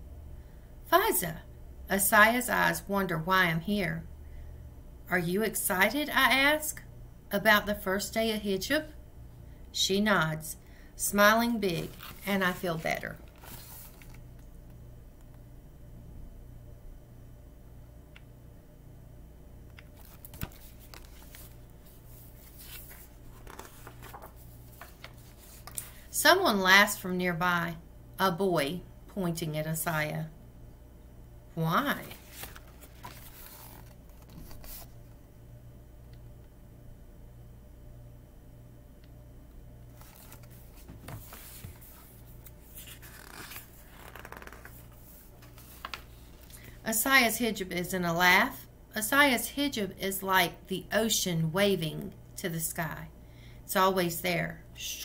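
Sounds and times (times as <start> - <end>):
faint low hum: 0.0 - 55.0
book rustling and clicking: 13.2 - 14.2, 19.8 - 21.6, 22.4 - 25.9, 32.0 - 34.9, 40.0 - 46.5.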